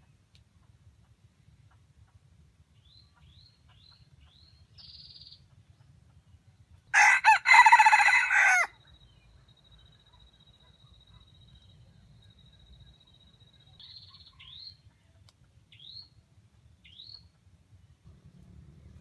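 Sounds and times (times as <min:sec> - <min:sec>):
small birds chirping: 0:00.0 - 0:07.1, 0:08.8 - 0:19.0
rooster crowing: 0:06.9 - 0:08.8.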